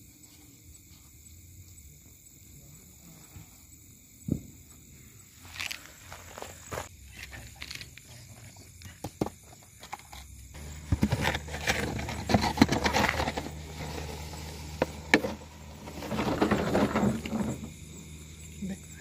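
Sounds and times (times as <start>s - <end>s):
crunching on gravel: 5.4s - 8.4s.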